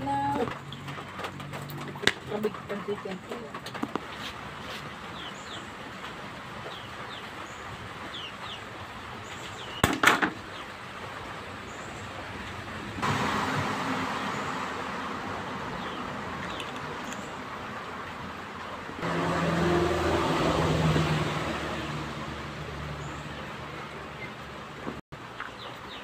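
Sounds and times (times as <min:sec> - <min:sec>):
small birds chirping: 0:00.0 - 0:10.8, 0:11.5 - 0:12.6, 0:15.7 - 0:17.5, 0:22.9 - 0:26.0
steady engine-like noise: 0:12.1 - 0:25.0.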